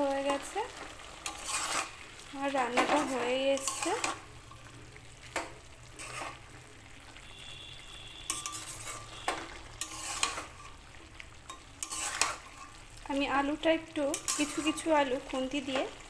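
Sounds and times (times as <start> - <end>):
soft sizzle: 0.0 - 16.0
spatula scraping metal pan: 1.1 - 2.0, 2.7 - 4.7, 5.9 - 6.5, 8.2 - 10.9, 11.5 - 12.9, 14.0 - 15.4.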